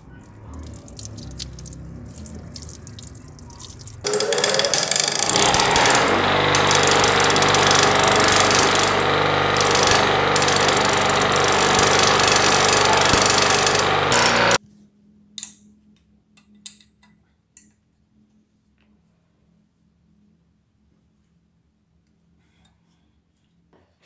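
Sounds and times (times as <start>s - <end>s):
grinder motor hum: 4.0s - 14.6s
bench grinder grinding steel: 4.1s - 14.6s.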